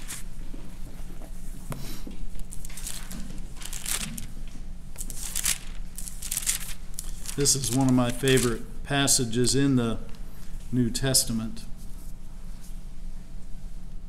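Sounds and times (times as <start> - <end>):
pages rustling: 0.0 - 0.3, 2.4 - 8.6
low steady hum: 0.0 - 14.0.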